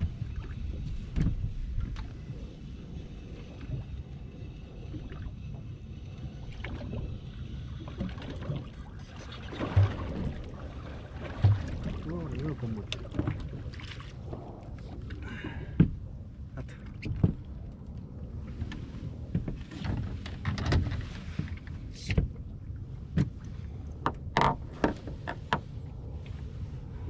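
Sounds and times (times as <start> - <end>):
knocks and thumps on boat: 0.0 - 2.3, 7.8 - 17.6, 18.4 - 25.7
steady low rumble: 0.0 - 27.0.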